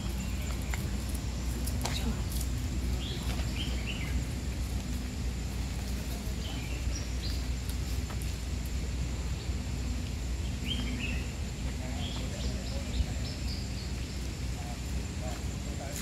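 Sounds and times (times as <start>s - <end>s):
low outdoor rumble: 0.0s - 16.0s
bird chirps: 10.4s - 14.3s.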